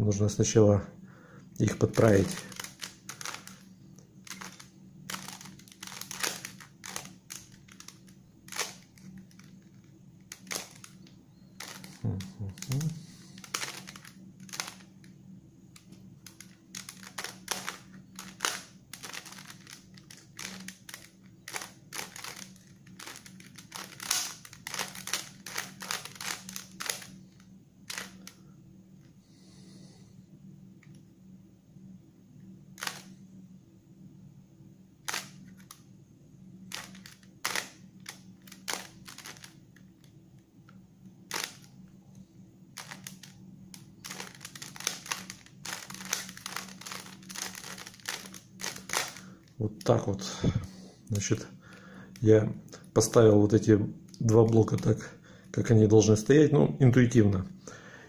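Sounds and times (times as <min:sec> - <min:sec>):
plastic puzzle cube clicking: 0:02.0 - 0:03.6, 0:04.2 - 0:14.9, 0:15.8 - 0:27.2, 0:27.9 - 0:28.4, 0:32.8 - 0:33.1, 0:35.1 - 0:35.8, 0:36.7 - 0:39.6, 0:41.3 - 0:41.7, 0:42.8 - 0:49.3.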